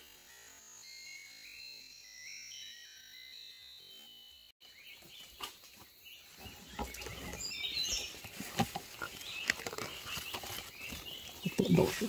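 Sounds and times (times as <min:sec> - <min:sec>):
small birds chirping: 0:00.3 - 0:12.0
rustling: 0:06.3 - 0:12.0.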